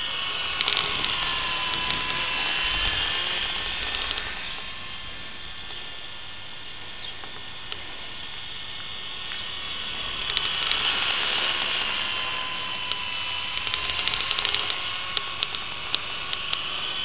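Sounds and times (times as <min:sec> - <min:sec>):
steady hiss: 0:00.0 - 0:17.0
toy helicopter motor whine: 0:00.0 - 0:17.0
small sharp ticks: 0:00.6 - 0:02.2, 0:03.8 - 0:04.3, 0:10.2 - 0:10.9, 0:12.8 - 0:16.7.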